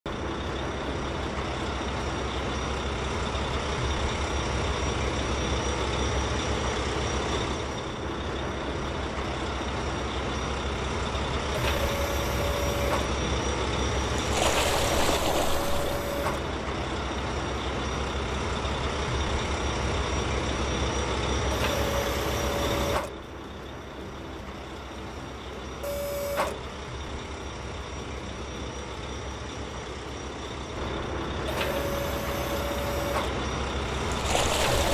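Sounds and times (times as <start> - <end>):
diesel engine running: 0.1 - 34.9
short steady tones: 14.2 - 16.4, 25.8 - 26.6.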